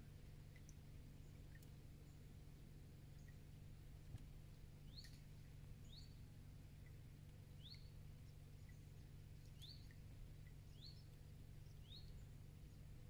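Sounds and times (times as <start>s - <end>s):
low outdoor rumble: 0.0s - 13.0s
small bird chirping: 3.1s - 3.4s, 4.8s - 12.9s.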